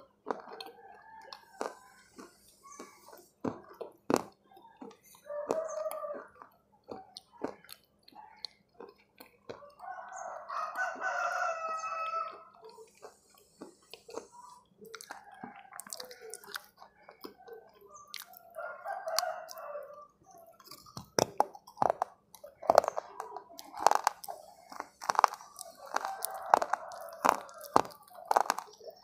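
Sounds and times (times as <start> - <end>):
wet mouth chewing clicks: 0.0 - 10.2, 11.7 - 29.0
biting crunches: 0.0 - 29.0
rooster crowing: 5.3 - 6.4, 9.6 - 12.6, 18.3 - 20.1, 25.8 - 28.6.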